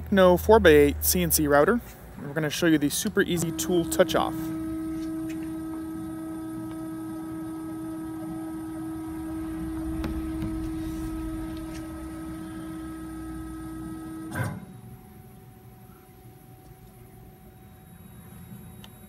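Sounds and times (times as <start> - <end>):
cnc router axis drive whining: 2.8 - 14.8.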